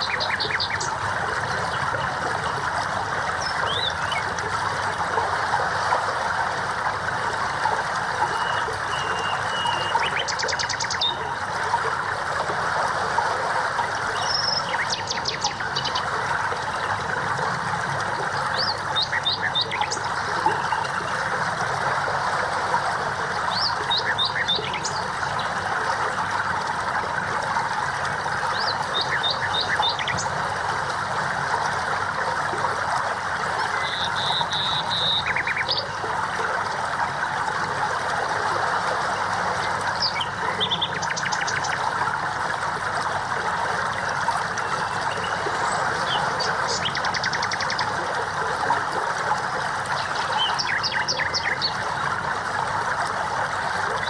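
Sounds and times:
songbirds chirping: 0.0s - 2.7s, 3.3s - 4.4s, 8.2s - 11.4s, 14.0s - 17.0s, 18.0s - 21.1s, 28.4s - 30.5s, 33.6s - 36.1s, 39.6s - 42.0s, 44.5s - 48.0s, 49.9s - 52.2s
bird whistle: 33.8s - 35.4s.

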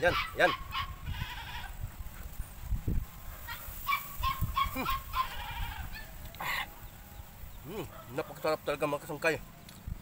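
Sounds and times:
domestic fowl calling: 0.1s - 1.8s, 3.5s - 7.0s.

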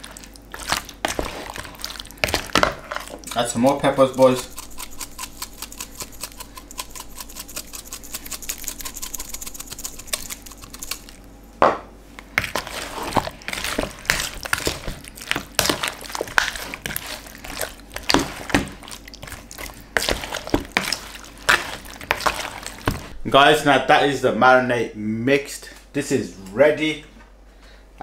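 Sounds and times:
squelching of meat mixed by hand: 0.0s - 3.4s, 12.4s - 23.2s
pepper mill grinding: 2.2s - 11.3s, 12.4s - 23.2s.

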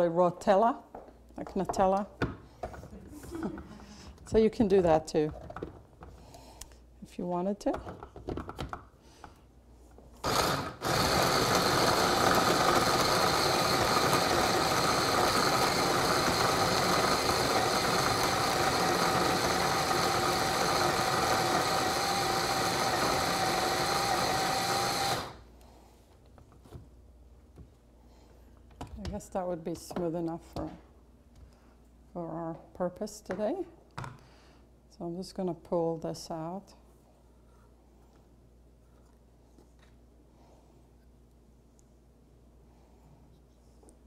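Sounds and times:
electric blender motor: 10.2s - 25.5s.

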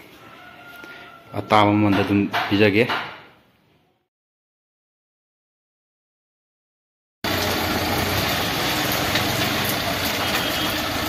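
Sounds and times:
street noise: 7.2s - 11.0s.

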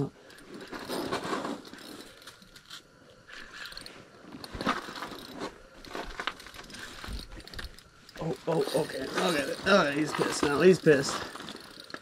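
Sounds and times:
fishing reel cranking clicks: 1.7s - 4.0s, 4.8s - 12.0s.

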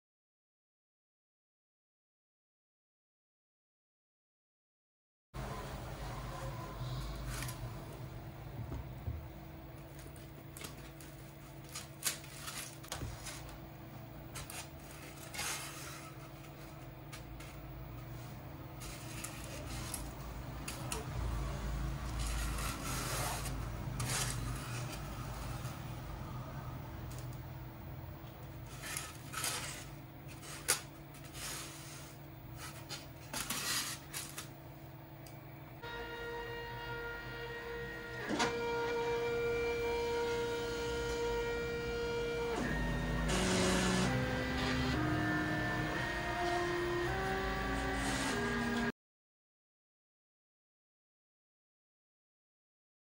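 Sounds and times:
foam rubbing and scraping: 14.3s - 20.3s, 22.0s - 26.0s, 28.6s - 34.5s
stepper motors whining: 35.8s - 48.9s.

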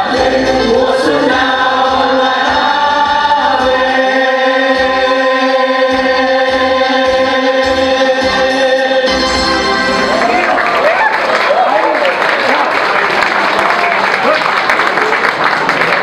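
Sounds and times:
mixed choir singing: 0.0s - 10.2s.

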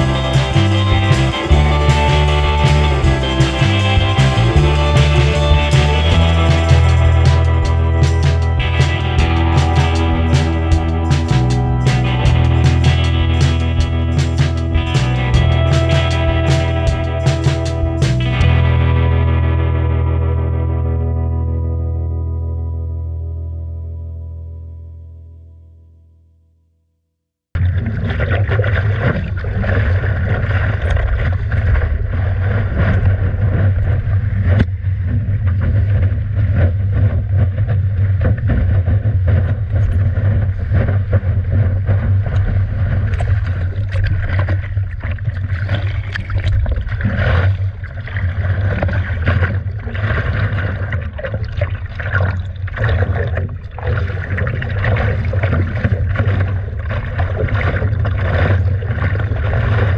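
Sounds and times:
water splashing against paddleboard: 27.6s - 59.9s
wind buffeting microphone: 29.3s - 51.2s.

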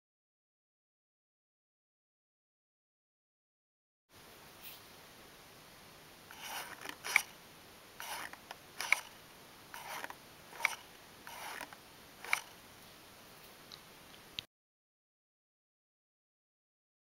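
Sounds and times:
paper scraping and clicking: 6.3s - 7.3s, 8.0s - 9.1s, 9.7s - 12.5s.

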